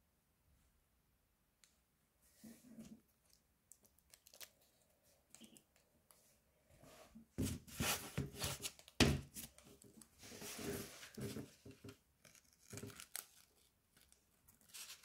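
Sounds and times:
paper and tape crinkling: 3.2 - 5.6, 7.7 - 15.0.

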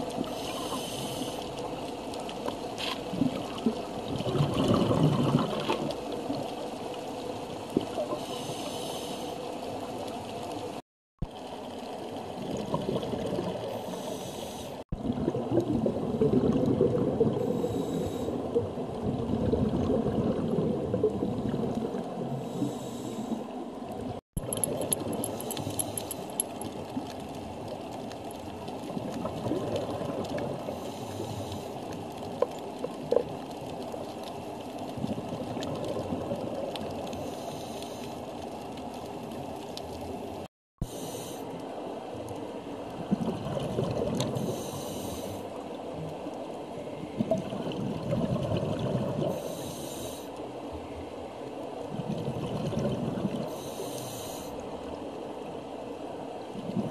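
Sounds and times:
muffled underwater rushing: 3.0 - 6.6.

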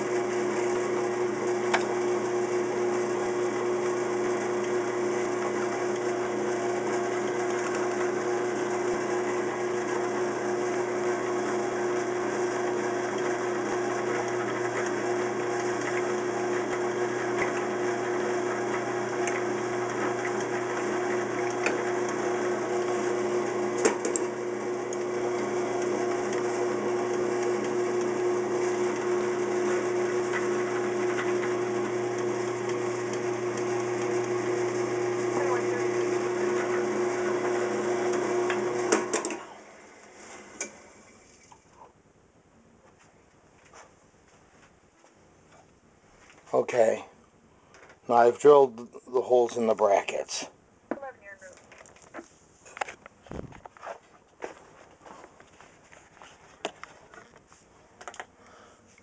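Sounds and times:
drill press humming: 0.0 - 41.2.

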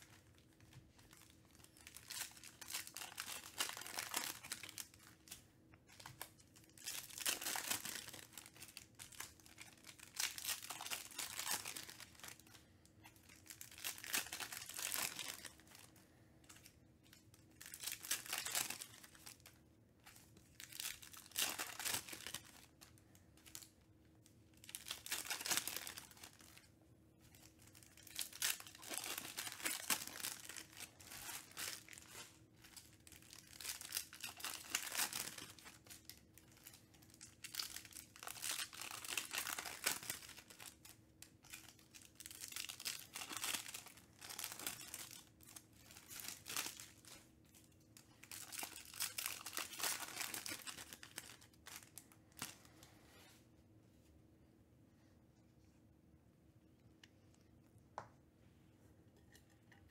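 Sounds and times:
foil wrappers tearing and crinkling: 0.0 - 5.4, 6.0 - 12.6, 13.2 - 15.9, 17.1 - 19.6, 20.5 - 23.7, 24.6 - 26.7, 27.3 - 47.3, 48.2 - 52.7.

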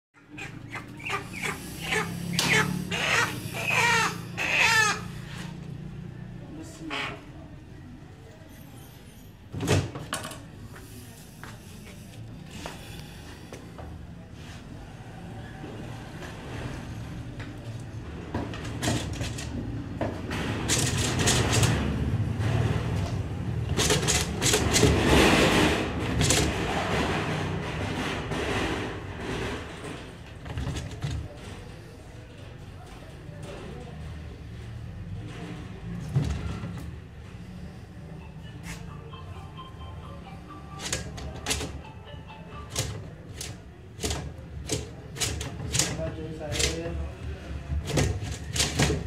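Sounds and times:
chicken squawking loudly: 0.2 - 5.5.

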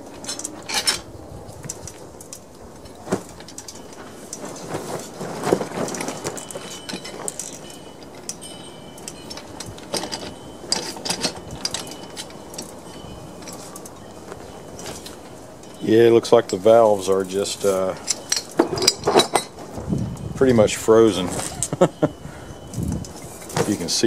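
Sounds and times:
metallic clinks and knocks: 0.1 - 24.0.

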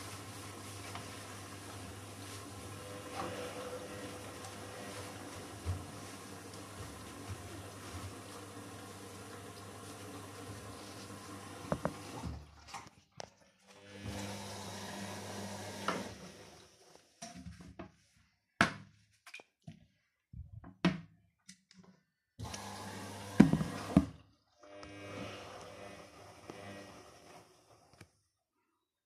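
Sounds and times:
motor hum: 2.6 - 12.4, 22.4 - 27.4.

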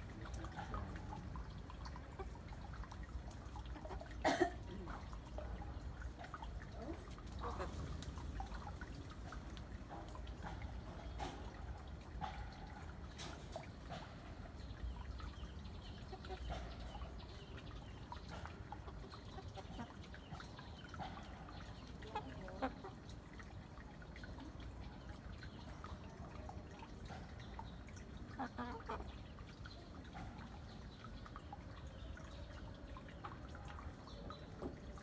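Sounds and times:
chickens clucking: 0.0 - 4.2, 4.8 - 35.0.

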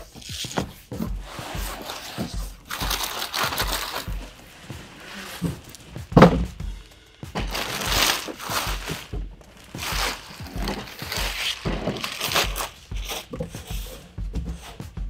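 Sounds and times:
plastic bag crinkling: 2.2 - 6.2, 6.8 - 13.4
cooler knocking on table: 4.1 - 6.7.

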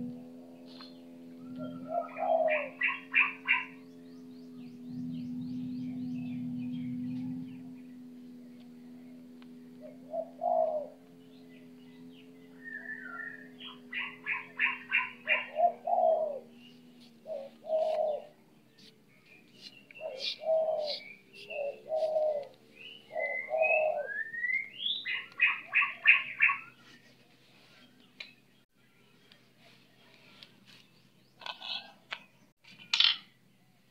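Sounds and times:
doves cooing: 0.0 - 28.4
bird chirping rapidly: 0.6 - 27.0.

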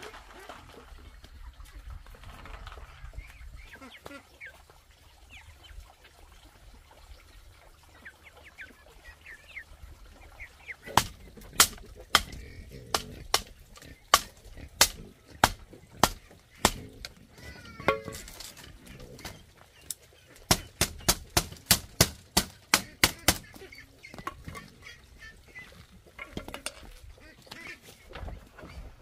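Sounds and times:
machete knocking on bamboo slats: 11.0 - 12.4, 14.1 - 16.8, 17.9 - 18.3, 20.5 - 23.4.

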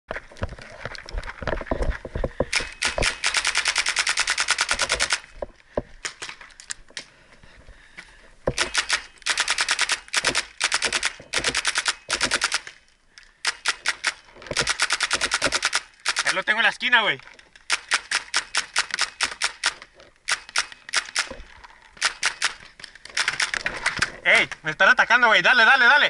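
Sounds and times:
paintball marker firing: 8.5 - 12.7, 13.5 - 16.4.

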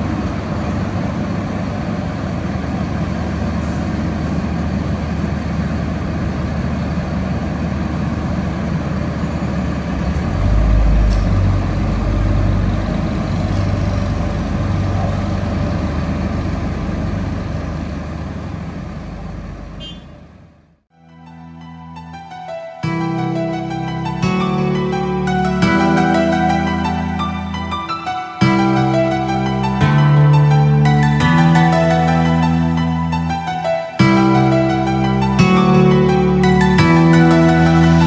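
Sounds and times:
diesel engines droning: 0.0 - 38.0
deep rumble: 7.8 - 19.8.

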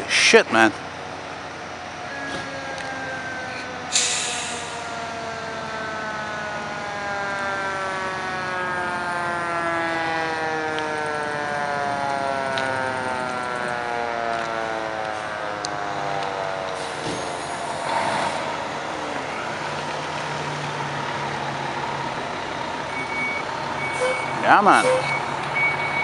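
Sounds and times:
fire truck siren winding down: 0.9 - 26.0
air brakes hiss: 3.9 - 4.8.

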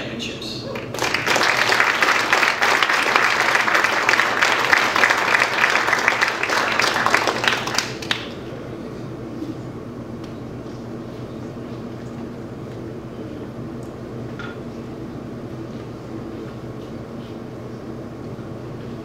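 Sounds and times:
audience applauding: 0.8 - 8.4.

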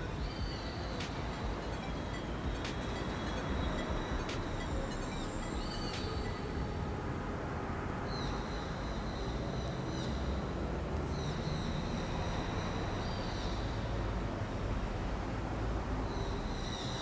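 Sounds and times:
thin high whistling tones: 0.0 - 7.0.

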